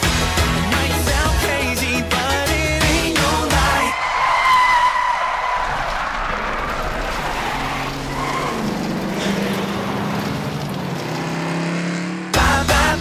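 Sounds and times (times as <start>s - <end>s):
race car at speed: 4.0s - 13.0s
engine drone: 6.6s - 13.0s.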